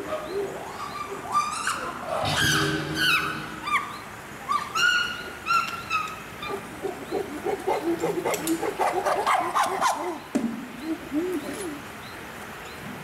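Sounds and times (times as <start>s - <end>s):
chimpanzees shrieking and hooting: 0.6s - 10.2s.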